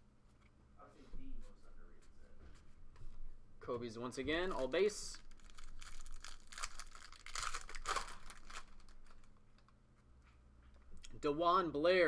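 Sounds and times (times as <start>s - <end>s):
foil wrapper tearing and crinkling: 5.2s - 9.3s.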